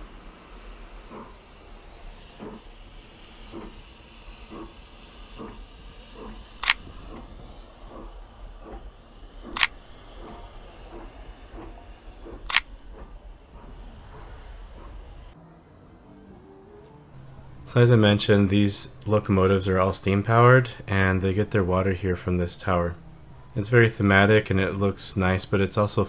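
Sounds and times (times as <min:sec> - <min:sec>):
steady hiss: 0:00.0 - 0:15.4, 0:17.2 - 0:26.0
camera shutter clicks: 0:06.6 - 0:06.9, 0:09.6 - 0:09.8, 0:12.5 - 0:12.7.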